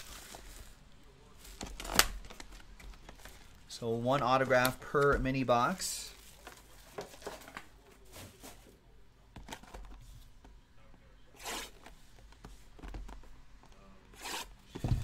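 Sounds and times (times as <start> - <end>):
rustle of packaging: 0.0 - 3.6
plastic wrapping crinkling: 0.0 - 3.7, 6.0 - 7.7.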